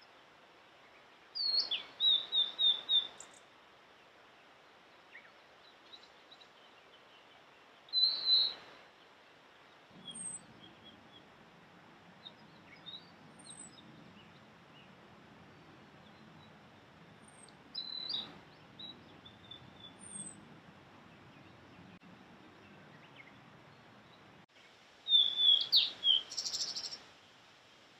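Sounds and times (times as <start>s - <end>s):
faint bird chirps: 0.8s - 3.5s, 4.6s - 11.4s, 12.1s - 20.4s, 21.1s - 27.1s
bird singing whistled phrases: 1.4s - 3.4s, 7.9s - 8.6s, 17.8s - 18.3s, 25.1s - 27.0s.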